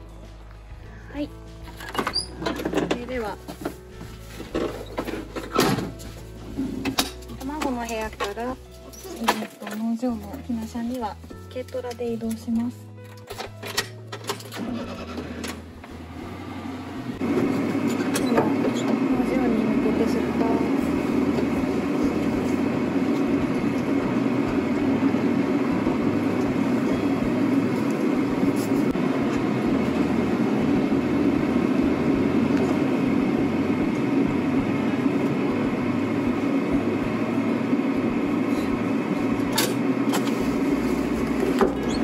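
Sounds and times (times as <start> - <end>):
road noise: 14.1 - 42.0
engine drone: 14.6 - 42.0.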